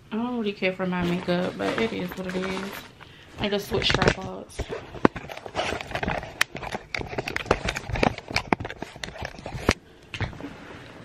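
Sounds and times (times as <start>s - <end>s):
camera handling clicks and knocks: 5.0s - 9.8s.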